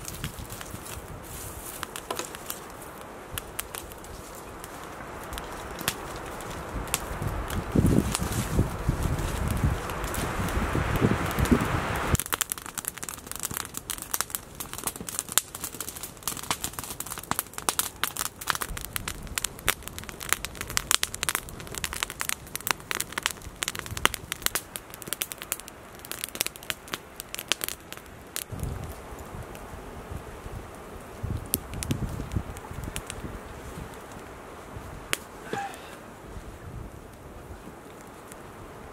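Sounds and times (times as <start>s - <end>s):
rustling: 0.0s - 11.7s
campfire crackling: 0.0s - 38.9s
flame hissing: 0.0s - 38.9s.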